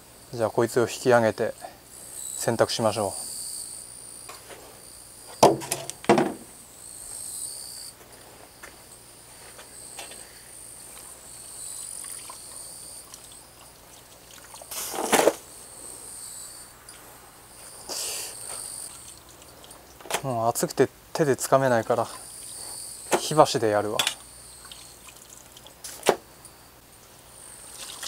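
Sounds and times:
insects chirping: 0:00.0 - 0:28.0
plastic crate knocks: 0:05.4 - 0:06.5.

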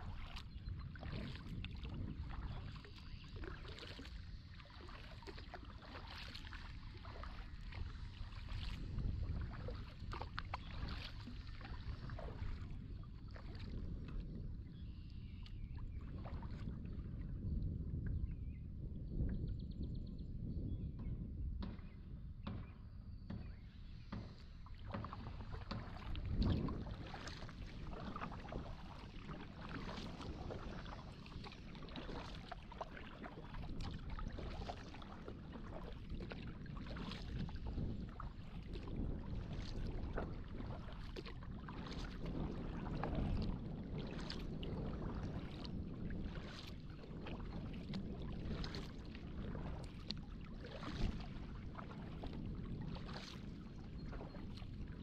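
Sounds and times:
continuous low rumble: 0:00.0 - 0:05.8
kayak paddle splashing in water: 0:00.0 - 0:16.8, 0:24.1 - 0:55.0.

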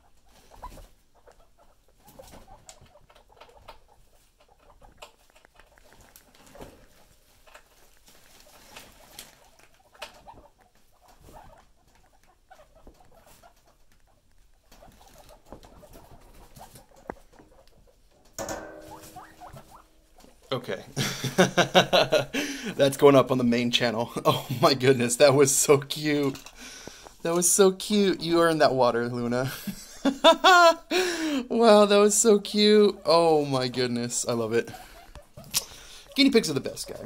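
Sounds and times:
guinea pigs scurrying on bedding: 0:00.0 - 0:21.9, 0:22.8 - 0:29.5, 0:31.5 - 0:37.0
guinea pig call: 0:08.4 - 0:18.0, 0:18.9 - 0:20.4.

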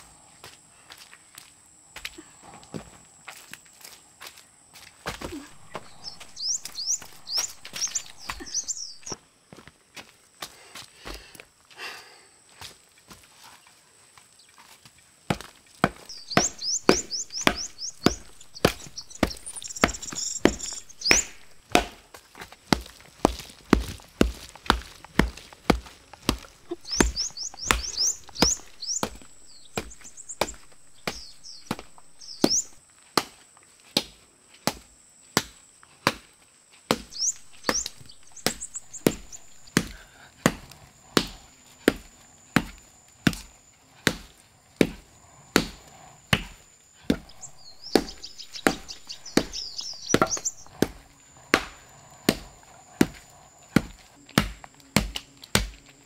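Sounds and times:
birds chirping: 0:04.4 - 0:09.3, 0:15.8 - 0:21.9, 0:22.8 - 0:32.8, 0:36.9 - 0:54.2
digging tool striking soil: 0:15.3 - 0:34.8, 0:36.9 - 0:45.0, 0:45.6 - 0:55.8.

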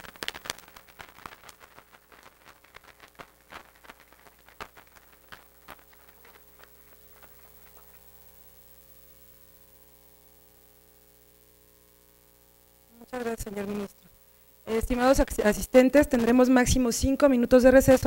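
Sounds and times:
faint steady hum: 0:00.0 - 0:18.0
audience applause: 0:02.9 - 0:08.2.

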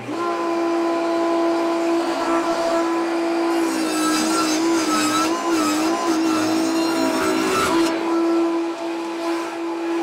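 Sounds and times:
table saw whining: 0:00.0 - 0:10.0
saw blade ripping board: 0:03.5 - 0:08.2.

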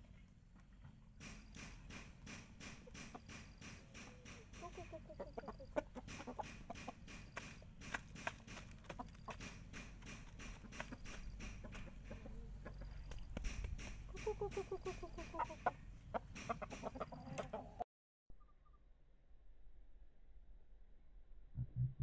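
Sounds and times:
chickens pecking on plastic tray: 0:00.2 - 0:17.7
chickens clucking softly: 0:02.7 - 0:17.8.

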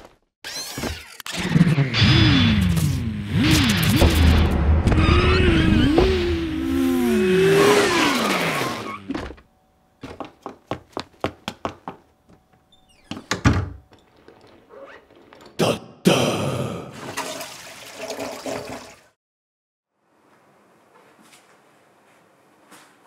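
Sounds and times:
motorcycle engine whine: 0:01.4 - 0:09.6
tyre squeal: 0:08.2 - 0:09.2
quick light footsteps: 0:10.0 - 0:12.5, 0:20.3 - 0:23.0.

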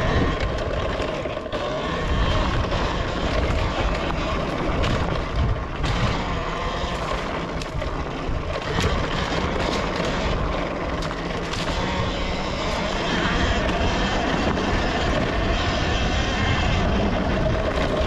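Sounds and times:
electric motor whine: 0:00.0 - 0:18.0
rumble of tyres and drivetrain: 0:00.0 - 0:18.0
sharp clicks and knocks: 0:02.4 - 0:12.0.

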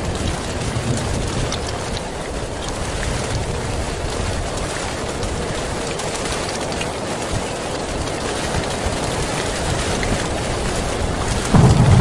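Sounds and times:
thunderclap rumbling: 0:00.0 - 0:04.4, 0:09.5 - 0:12.0
heavy rain on a tin roof: 0:00.0 - 0:12.0.

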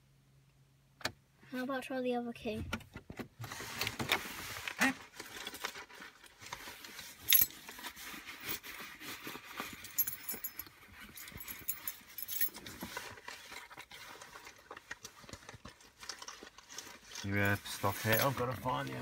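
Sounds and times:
keys jangling and clicking: 0:07.2 - 0:07.6, 0:09.6 - 0:12.7.

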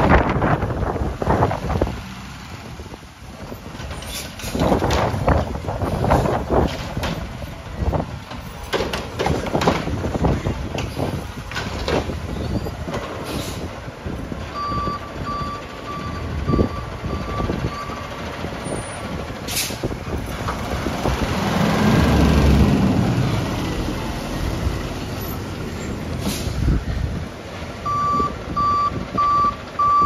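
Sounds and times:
diesel engine running: 0:09.7 - 0:30.0
reversing beeps: 0:14.6 - 0:18.1, 0:27.8 - 0:30.0.

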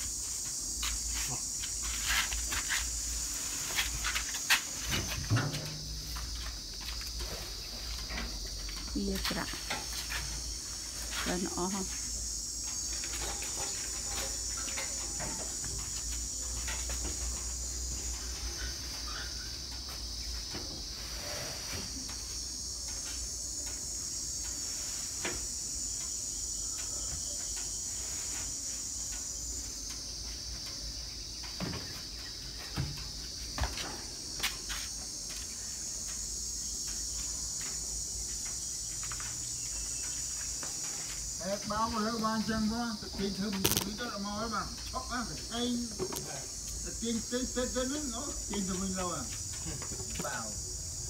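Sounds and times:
high-pitched insect drone: 0:00.0 - 0:51.0
thumps on metal vehicle bed: 0:04.9 - 0:06.4.

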